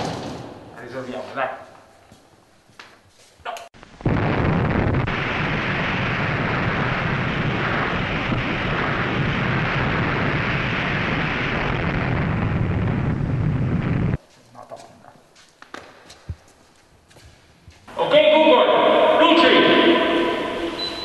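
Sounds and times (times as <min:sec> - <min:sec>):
deep rumble of explosion: 0:03.9 - 0:14.2.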